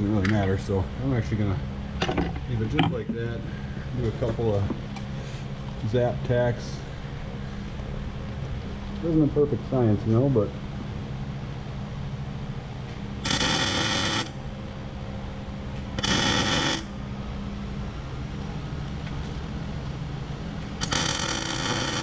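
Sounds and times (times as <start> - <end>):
steady low hum: 0.0 - 22.0
welder arc crackling sizzle: 13.2 - 14.3, 15.8 - 16.9, 20.8 - 22.0.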